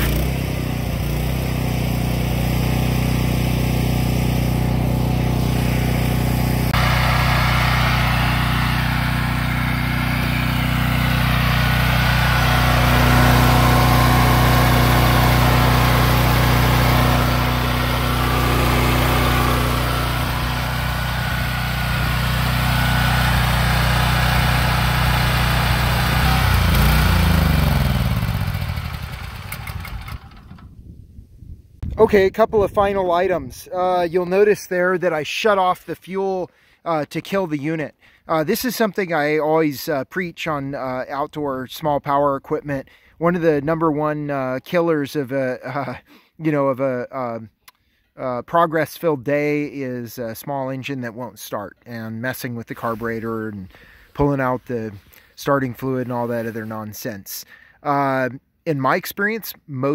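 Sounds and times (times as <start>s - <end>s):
pressure washer engine running: 0.0s - 30.5s.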